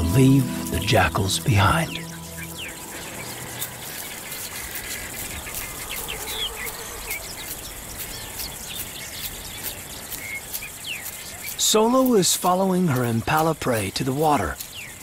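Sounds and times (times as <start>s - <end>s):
high bird chirps: 0.0s - 11.6s
insect ticking: 0.0s - 15.0s.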